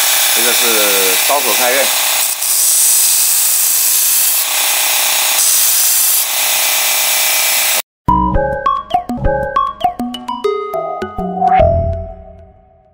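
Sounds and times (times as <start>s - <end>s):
knife grinding on belt: 2.2s - 4.4s.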